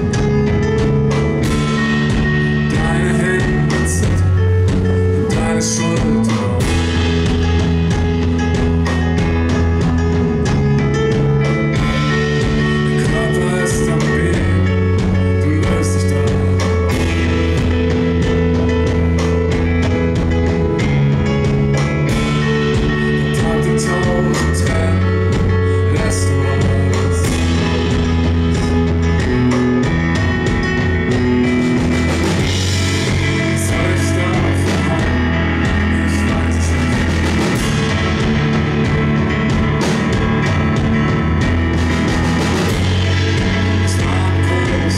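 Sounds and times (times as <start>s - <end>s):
bass guitar: 0.0s - 44.9s
drum kit: 0.0s - 44.9s
keyboard piano chords: 0.0s - 44.9s.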